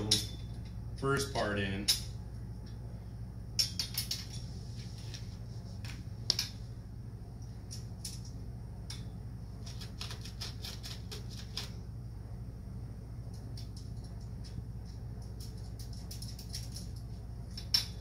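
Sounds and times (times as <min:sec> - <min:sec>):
metal tools clicking and clinking: 0:03.6 - 0:04.5, 0:15.2 - 0:18.0.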